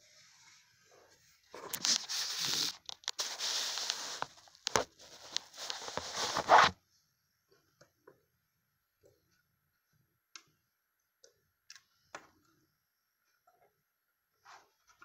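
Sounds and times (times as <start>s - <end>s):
hand rubbing on phone microphone: 0.9s - 6.8s.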